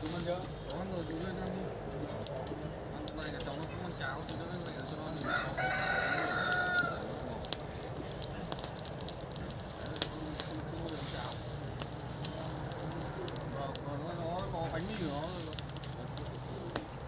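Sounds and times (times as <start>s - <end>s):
straw fire crackling and popping: 0.0s - 17.0s
rooster crowing: 5.2s - 7.2s.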